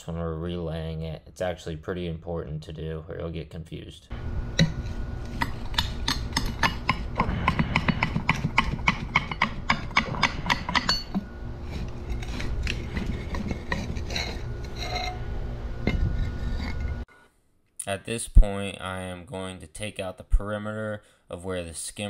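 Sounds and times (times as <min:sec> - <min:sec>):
metal scraper on stone: 0:04.6 - 0:17.1.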